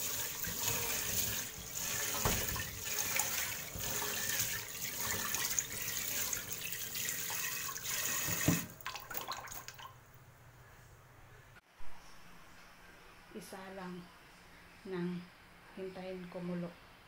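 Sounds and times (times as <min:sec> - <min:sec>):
tap water running into a pot: 0:00.0 - 0:09.9.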